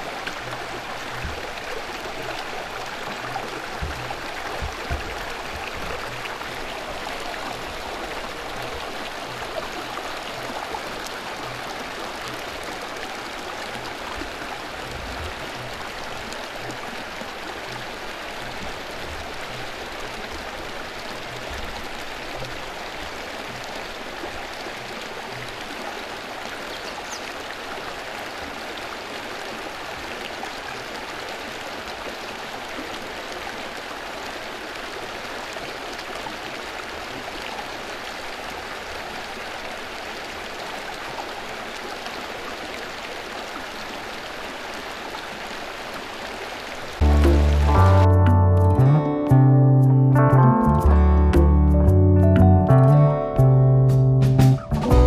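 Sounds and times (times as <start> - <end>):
faint low bumps: 0.0 - 9.5
water pouring into concrete channels: 0.0 - 48.0.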